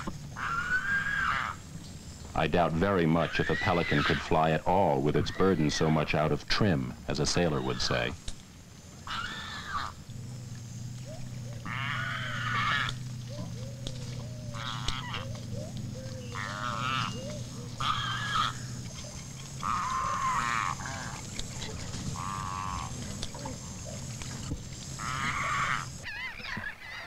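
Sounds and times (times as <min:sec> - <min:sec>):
birds calling: 0:00.0 - 0:27.0
low hum: 0:06.0 - 0:26.1
soft bird chirps: 0:07.6 - 0:27.0.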